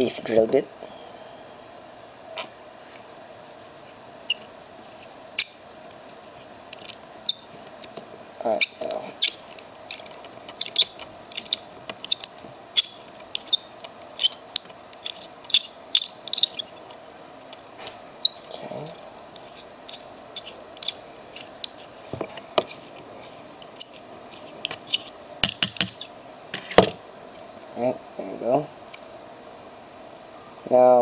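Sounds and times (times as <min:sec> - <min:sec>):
faint steady hum: 0:00.0 - 0:31.0
hand drill squeaks and clicks: 0:03.7 - 0:05.6, 0:08.6 - 0:16.7, 0:19.9 - 0:21.9, 0:22.7 - 0:25.1.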